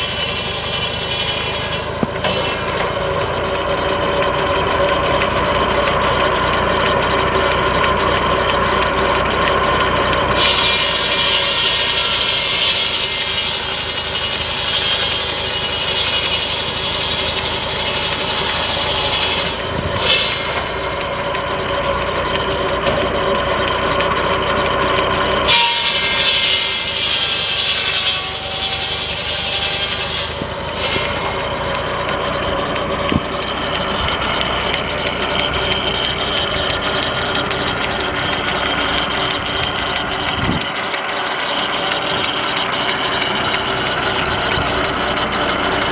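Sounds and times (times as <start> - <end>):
circular saw cutting logs: 0.0 - 45.9
tractor engine running: 0.0 - 45.9.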